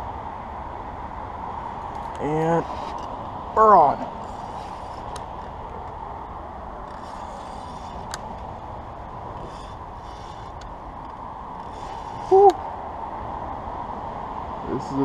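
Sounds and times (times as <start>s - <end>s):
fishing reel cranking: 6.9s - 8.2s, 9.4s - 10.7s, 11.6s - 12.3s.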